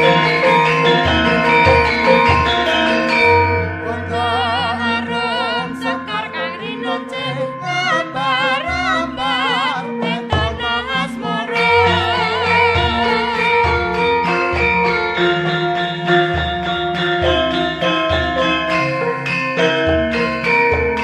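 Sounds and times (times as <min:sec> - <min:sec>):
person singing with heavy vibrato: 0:00.0 - 0:15.9
sustained instrumental chords: 0:00.0 - 0:21.0.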